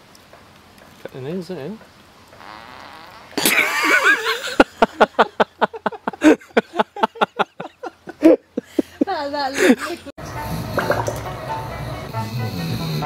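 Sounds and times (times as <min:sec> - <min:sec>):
chimpanzee farting: 0:02.4 - 0:04.0, 0:10.3 - 0:13.0.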